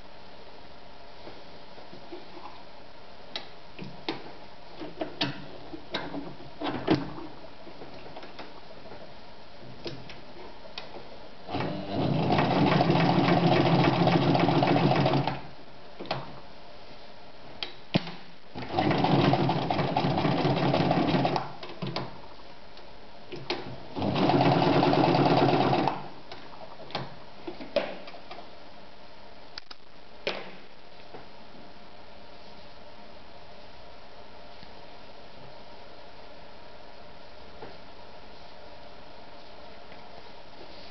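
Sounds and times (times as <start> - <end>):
sewing machine stitching leather: 11.5 - 15.5, 18.6 - 22.0, 23.9 - 26.1.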